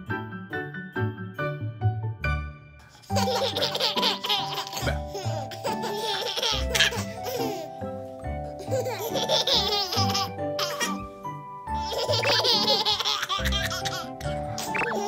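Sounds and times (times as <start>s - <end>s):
light background music: 0.0s - 15.0s
babies laughing: 3.0s - 7.8s, 8.5s - 11.1s, 11.7s - 15.0s.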